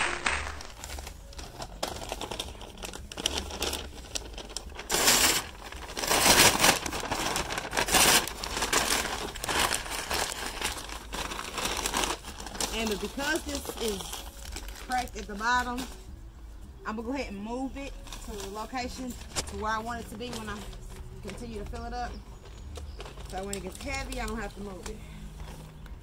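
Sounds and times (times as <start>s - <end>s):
paper ripping: 0.0s - 15.4s
paper bags crumpling: 0.0s - 16.1s, 17.6s - 26.0s.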